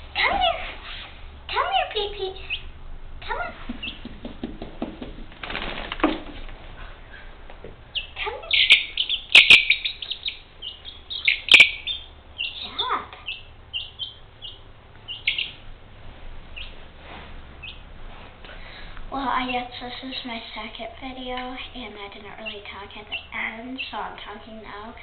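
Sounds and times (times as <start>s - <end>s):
chick peeping: 3.7s - 4.1s, 7.9s - 15.6s, 17.6s - 17.8s, 21.4s - 24.0s.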